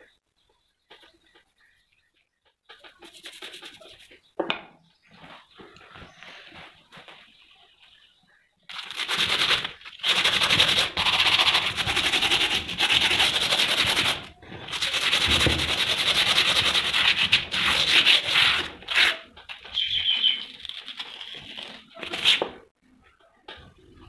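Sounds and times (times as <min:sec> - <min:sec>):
sandpaper rasping on iron: 0:09.0 - 0:19.3.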